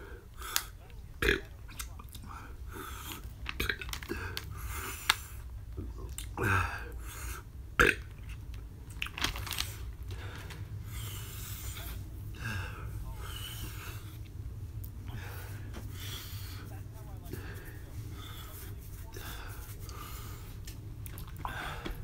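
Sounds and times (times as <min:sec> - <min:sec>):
person burping: 0:01.2 - 0:01.5, 0:07.8 - 0:08.1
plastic packet crinkling: 0:03.4 - 0:05.2, 0:08.9 - 0:10.5.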